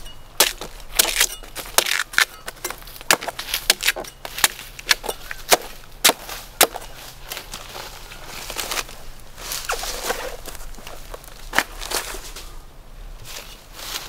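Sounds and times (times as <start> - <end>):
blade chopping coconut: 0.4 - 6.9.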